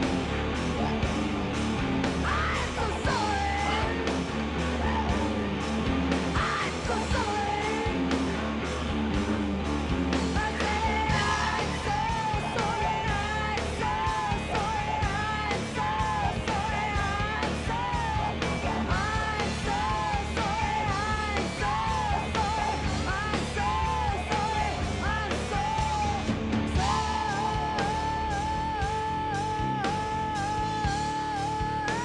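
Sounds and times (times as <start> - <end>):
rock song with drums and guitar: 0.0 - 32.0
person singing: 2.2 - 5.4, 6.3 - 8.2, 10.3 - 32.0.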